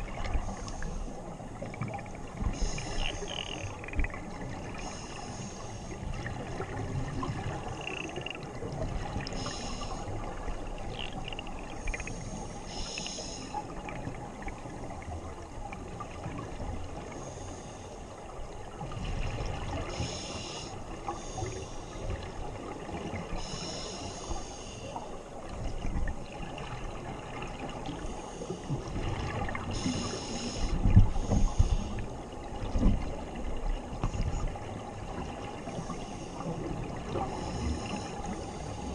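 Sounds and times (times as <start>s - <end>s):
muffled underwater rumble: 0.0s - 38.9s
regulator bubbling underwater: 6.0s - 13.1s.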